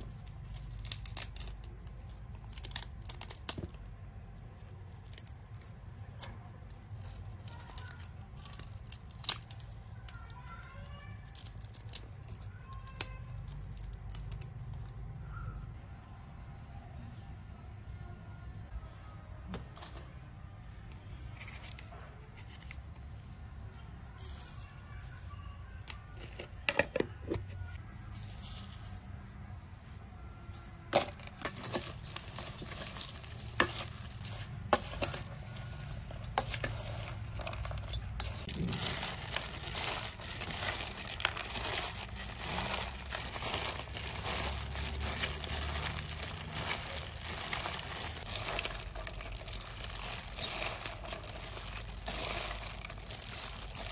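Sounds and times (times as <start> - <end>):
dense steady crackling: 0.0 - 15.8, 31.0 - 53.9.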